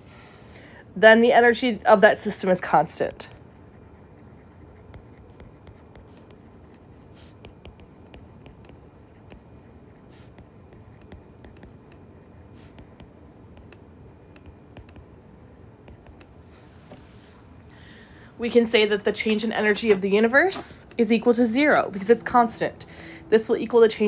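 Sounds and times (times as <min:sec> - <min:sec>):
low steady hum: 0:00.0 - 0:24.0
stylus tapping on tablet screen: 0:04.6 - 0:16.4.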